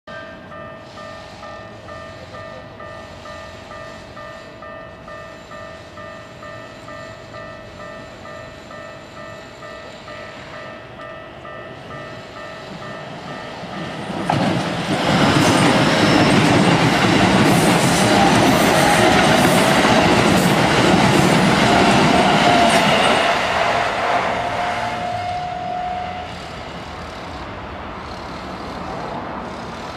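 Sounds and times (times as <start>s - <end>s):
level-crossing bell dinging: 0.1s - 14.1s
train passing: 0.1s - 29.9s.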